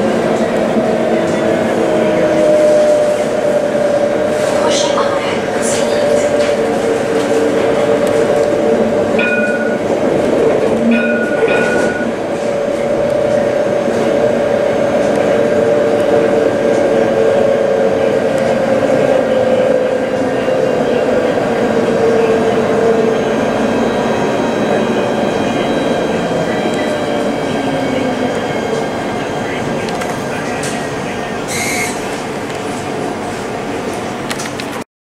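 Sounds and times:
tram motor whine: 0.0s - 34.8s
short beeps: 31.5s - 32.0s.

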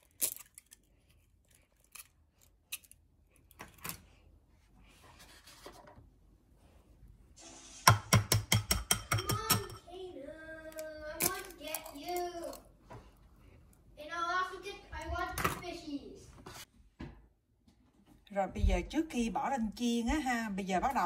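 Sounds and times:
egg tapping on glass bowl: 7.9s - 9.8s.

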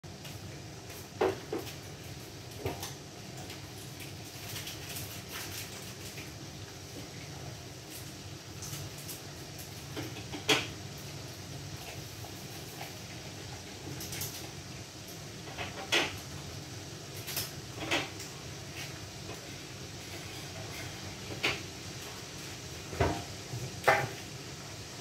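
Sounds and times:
cupboard doors and pots knocking: 22.9s - 24.2s.

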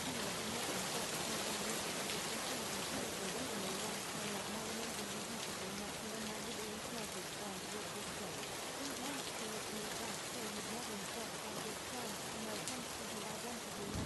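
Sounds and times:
steady rain: 0.0s - 14.0s.

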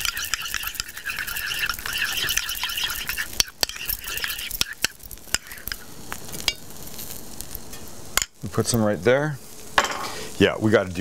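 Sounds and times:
utensil scraping sauce in bowl: 0.0s - 6.6s.

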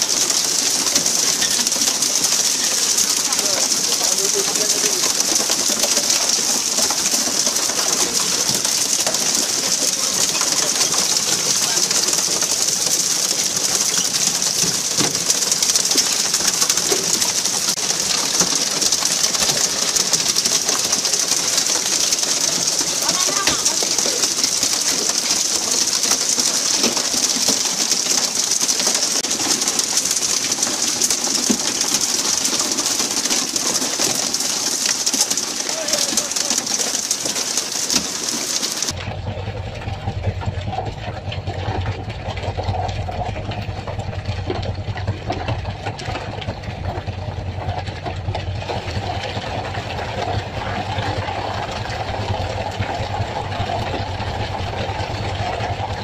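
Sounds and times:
water spray jets hissing: 0.0s - 39.0s
water rushing alongside hull: 0.0s - 56.0s.

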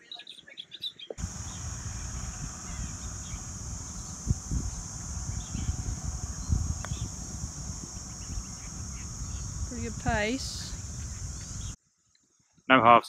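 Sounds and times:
faint bird chirps: 0.0s - 11.8s
putter striking golf ball: 1.2s - 11.5s
high-pitched buzz: 1.2s - 11.8s
wind rumbling on microphone: 1.2s - 11.8s.

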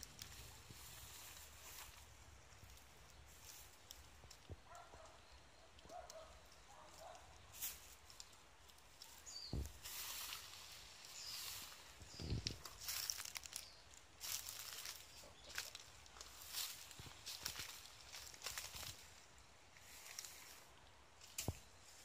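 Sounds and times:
footsteps in dry leaves: 0.0s - 4.8s, 5.9s - 22.0s
plastic bags rustling: 9.6s - 19.1s.

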